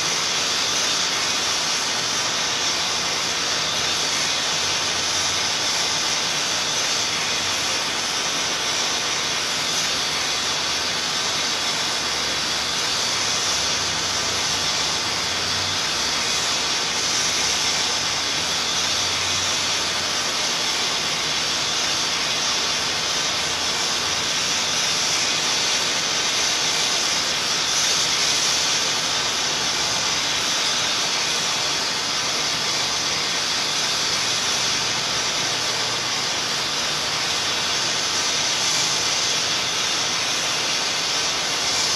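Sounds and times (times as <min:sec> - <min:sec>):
white noise hiss: 0:00.0 - 0:41.9.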